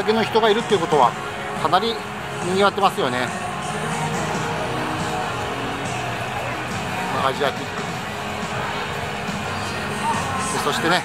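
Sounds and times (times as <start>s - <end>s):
music with held notes: 0.0s - 11.0s.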